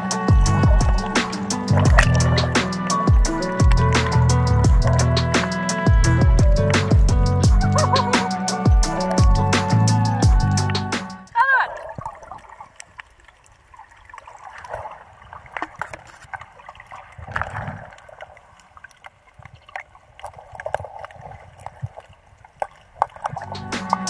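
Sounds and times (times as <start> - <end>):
underwater gurgling and bubbling: 0.0 - 9.6, 15.4 - 18.4, 19.5 - 24.0
small clicks and crackles: 12.0 - 24.0.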